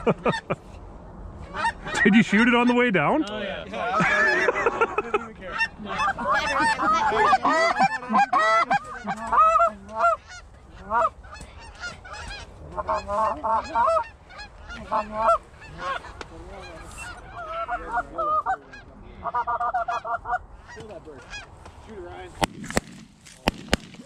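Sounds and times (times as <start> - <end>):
geese honking: 1.4 - 22.2
shotgun shots: 22.4 - 24.0.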